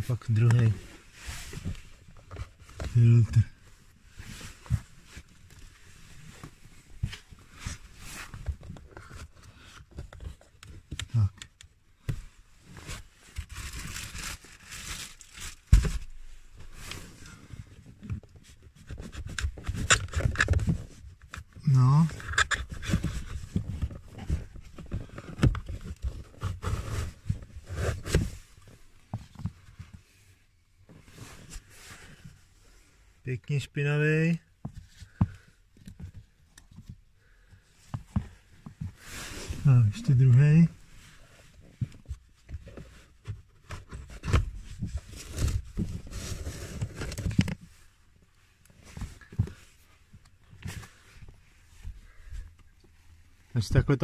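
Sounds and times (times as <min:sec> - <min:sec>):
air filter scraping and rustling: 0:38.3 - 0:42.0
air filter scraping in plastic housing: 0:43.6 - 0:47.8.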